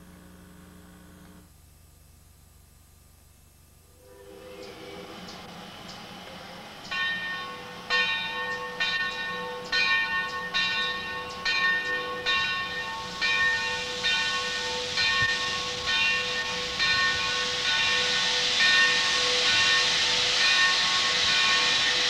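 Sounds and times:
steam hissing: 0:04.0 - 0:22.0
locomotive bell ringing: 0:06.3 - 0:22.0.

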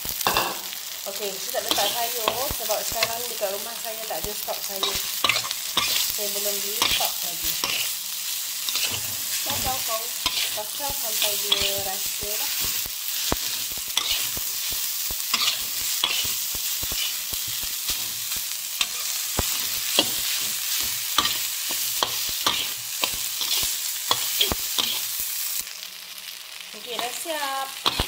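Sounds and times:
rice sizzling in a wok: 0:00.0 - 0:28.0
metal spatula scraping wok: 0:04.7 - 0:06.2, 0:06.8 - 0:08.0, 0:08.6 - 0:25.1.

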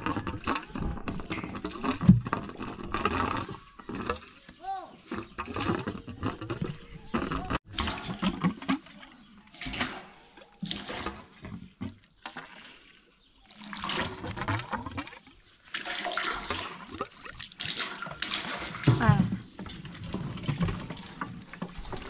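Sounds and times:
water gushing from a pipe: 0:00.0 - 0:04.4, 0:12.4 - 0:22.0.

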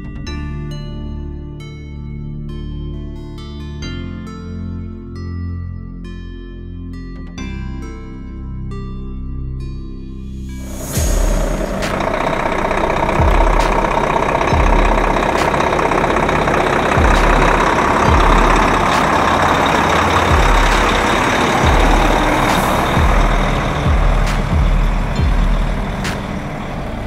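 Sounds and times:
truck diesel engine passing: 0:10.5 - 0:27.0
music beat with kick drums: 0:10.8 - 0:26.6.

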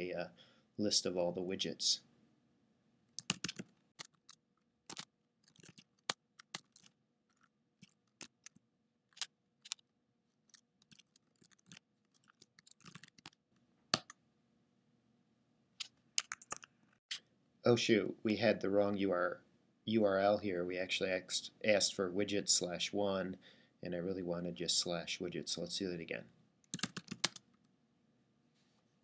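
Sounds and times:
typing on keyboard: 0:03.2 - 0:06.9, 0:10.5 - 0:13.4, 0:16.2 - 0:16.7, 0:26.7 - 0:27.4.

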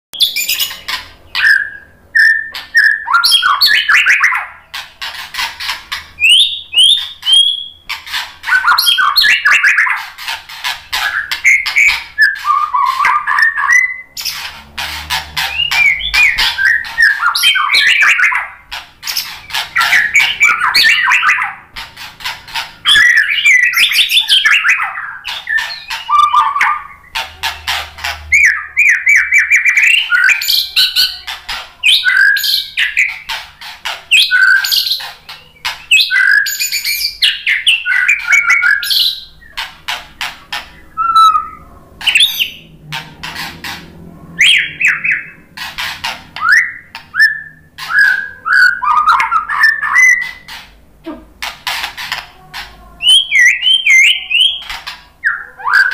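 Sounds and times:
songbird singing varied song: 0:00.2 - 0:04.6, 0:15.4 - 0:21.8.

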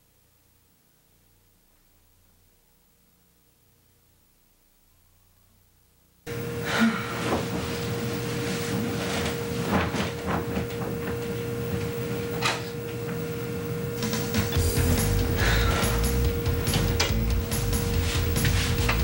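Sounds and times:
steady hum and hiss: 0:00.0 - 0:19.0
bedclothes rustling: 0:07.0 - 0:12.2, 0:17.8 - 0:19.0.

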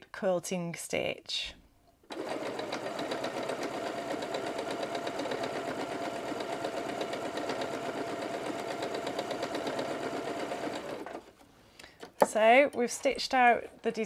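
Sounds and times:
sewing machine running: 0:02.1 - 0:11.3.

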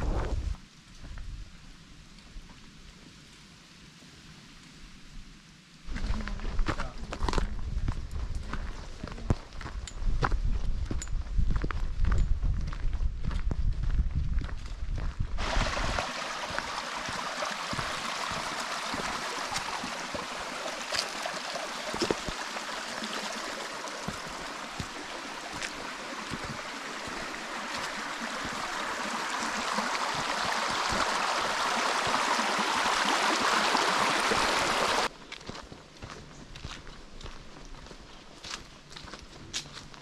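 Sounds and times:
water rushing in a channel: 0:15.4 - 0:35.1.

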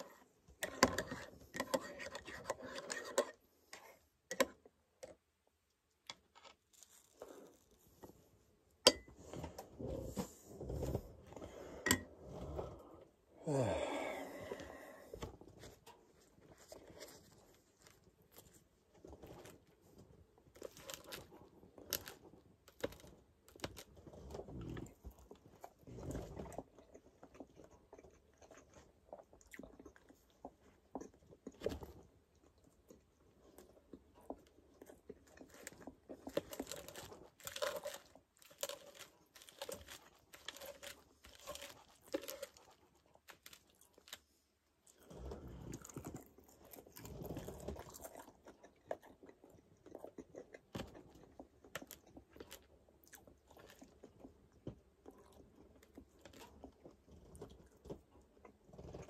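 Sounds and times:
chewing a sandwich: 0:00.0 - 0:08.6, 0:09.2 - 0:59.0.

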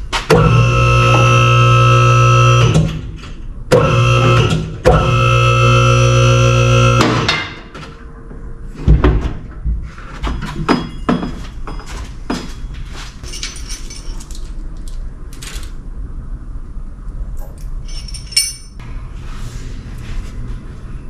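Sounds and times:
metal tools clanking: 0:10.3 - 0:15.7, 0:17.4 - 0:18.8.

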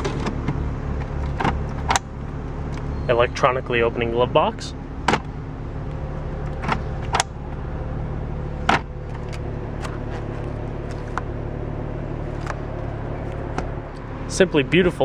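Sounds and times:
low car hum: 0:00.0 - 0:15.0.

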